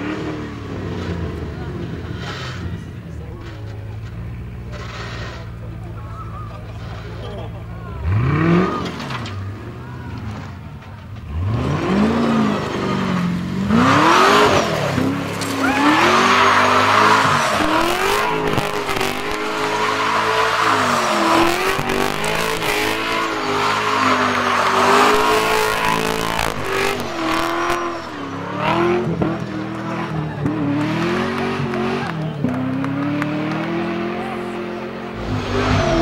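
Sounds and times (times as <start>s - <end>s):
car engine revving hard: 8.0s - 9.4s, 11.3s - 36.0s
tyre squeal: 14.5s - 28.9s.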